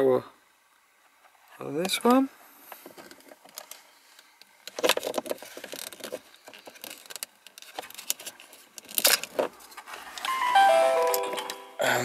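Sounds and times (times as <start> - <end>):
plastic clicks and rattles: 4.7 - 9.5
plastic clatter: 4.7 - 10.0.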